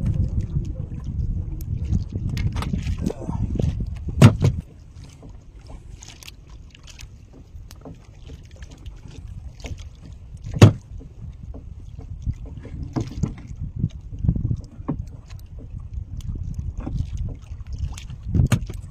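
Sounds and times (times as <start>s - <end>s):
low rumble: 0.0s - 6.0s.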